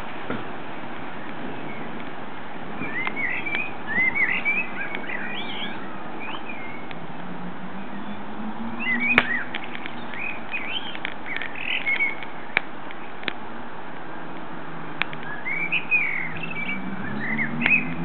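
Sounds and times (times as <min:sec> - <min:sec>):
blackbird singing: 0:02.8 - 0:07.0, 0:07.8 - 0:12.6, 0:15.2 - 0:18.0.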